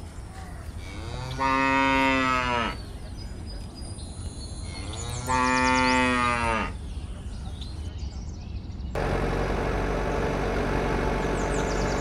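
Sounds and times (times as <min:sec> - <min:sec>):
cow mooing: 0:00.9 - 0:02.8, 0:04.9 - 0:06.8.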